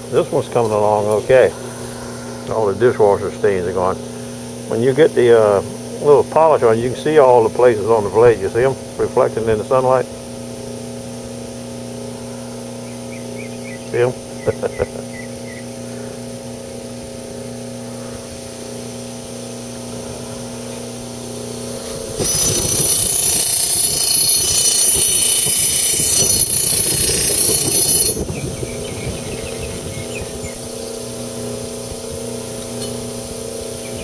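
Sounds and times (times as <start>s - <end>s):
buffer motor humming: 0.0s - 34.0s
knife blade hissing on buffing wheel: 21.5s - 28.3s.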